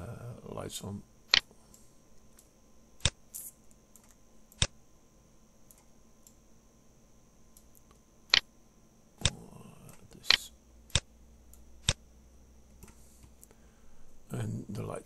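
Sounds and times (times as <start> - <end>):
sharp mouse clicks: 2.4 - 4.8.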